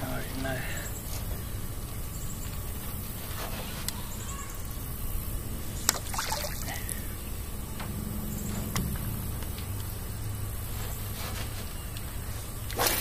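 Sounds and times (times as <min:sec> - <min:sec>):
water splash: 0:05.9 - 0:06.8, 0:12.7 - 0:13.0.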